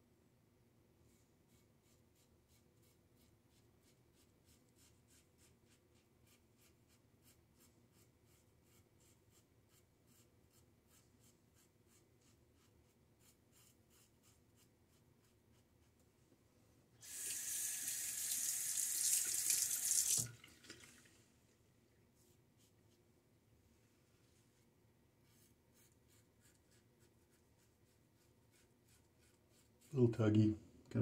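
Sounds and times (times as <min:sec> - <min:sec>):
shaving brush scratching on face: 0:01.5 - 0:15.7, 0:25.3 - 0:30.0.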